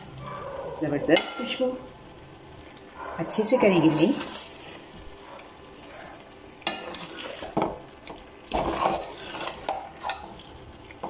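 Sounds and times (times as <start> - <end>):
gravy frying: 0.0 - 11.0
metal spoon scraping a pot: 5.8 - 7.7, 8.5 - 10.3.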